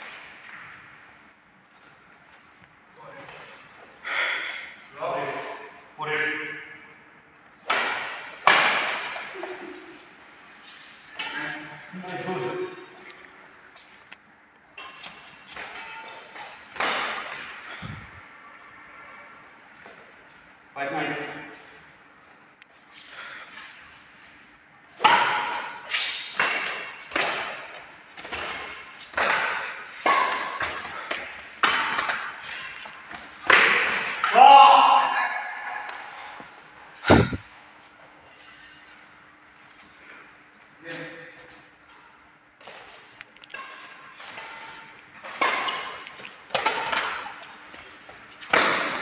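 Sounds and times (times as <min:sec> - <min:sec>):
rackets hitting shuttlecock: 0:07.6 - 0:10.0, 0:14.8 - 0:17.8, 0:24.9 - 0:34.5, 0:35.6 - 0:37.4, 0:43.5 - 0:49.0.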